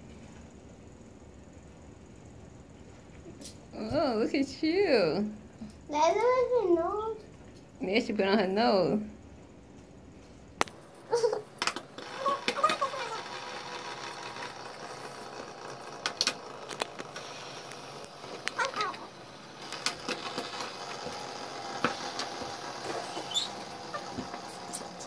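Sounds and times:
fidget spinners whirring: 0:10.6 - 0:25.0.

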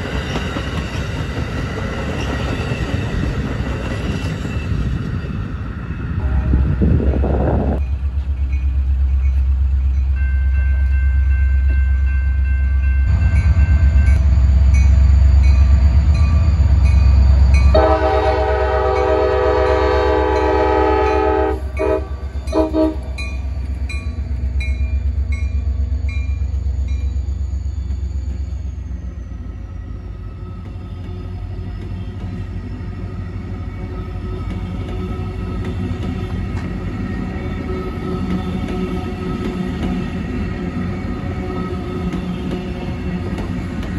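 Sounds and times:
diesel train engine rumble: 0:00.0 - 0:43.9
train air horn blasts: 0:06.2 - 0:07.0, 0:17.6 - 0:23.3.

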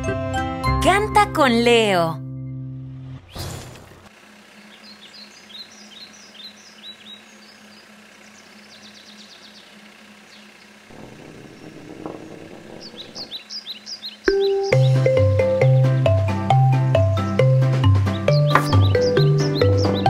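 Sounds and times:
birds chirping: 0:04.4 - 0:20.0
low rumble: 0:10.9 - 0:13.6.

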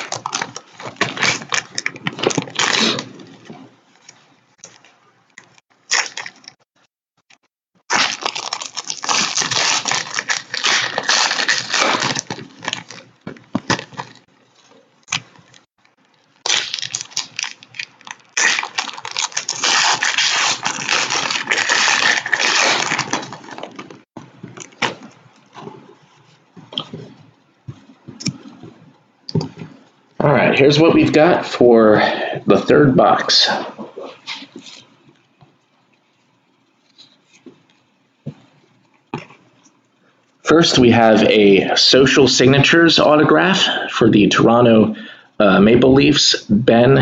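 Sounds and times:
foil wrappers crinkling and tearing: 0:00.0 - 0:03.4, 0:05.8 - 0:06.6, 0:07.9 - 0:26.1.

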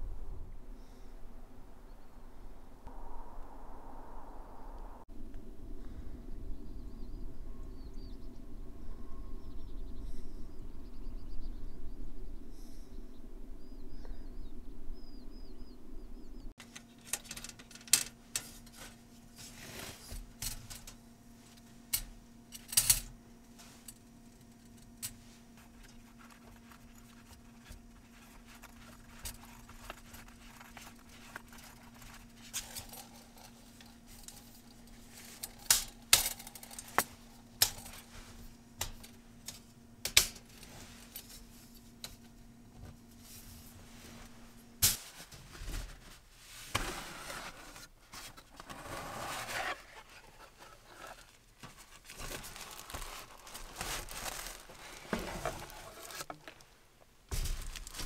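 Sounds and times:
faint steady hum: 0:00.0 - 0:58.0
contents rustling: 0:24.5 - 0:39.2, 0:45.0 - 0:56.7, 0:57.3 - 0:58.0.

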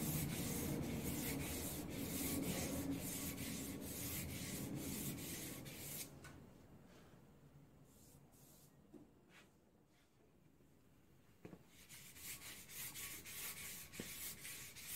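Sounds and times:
sandpaper rubbing: 0:00.0 - 0:06.1, 0:11.8 - 0:14.9.

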